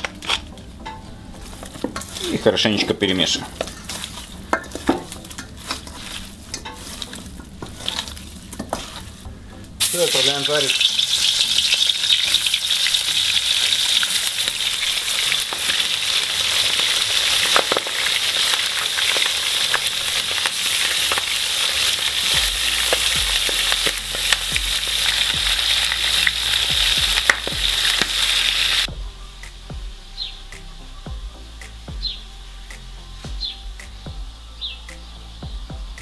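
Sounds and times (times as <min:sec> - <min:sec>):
chicken frying in oil: 0:09.8 - 0:28.9.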